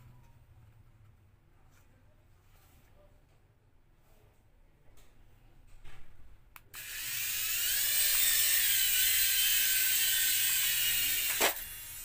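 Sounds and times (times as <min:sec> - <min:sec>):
toy helicopter motors whining: 0:06.8 - 0:12.0.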